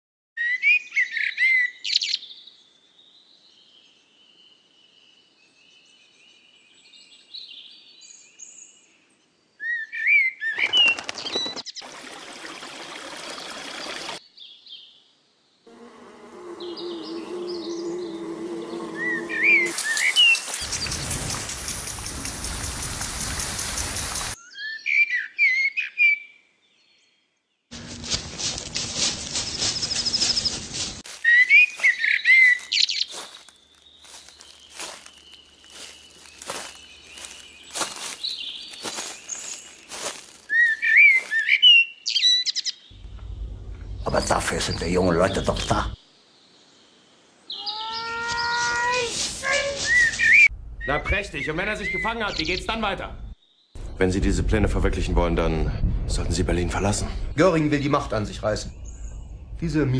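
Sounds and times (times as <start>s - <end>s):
high bird-like chirps: 19.0s - 26.3s, 29.5s - 43.0s, 47.5s - 52.8s.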